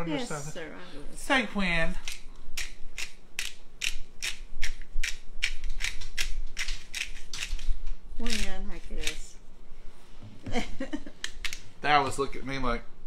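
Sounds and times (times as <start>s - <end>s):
pepper grinder rasping: 2.0s - 9.2s.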